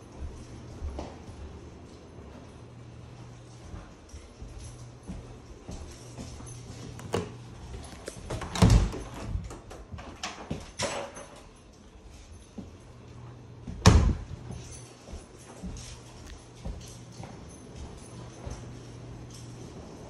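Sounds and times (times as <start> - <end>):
closet door opening and shutting: 6.7 - 11.6, 13.6 - 14.7
heavy door thumps: 13.7 - 14.5.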